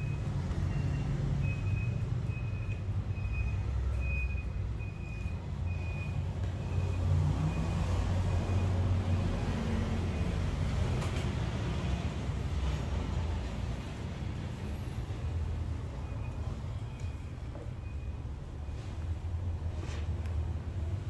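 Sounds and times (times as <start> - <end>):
high electronic warning beep: 0.0 - 9.4
vehicle engine rumble: 0.0 - 21.0.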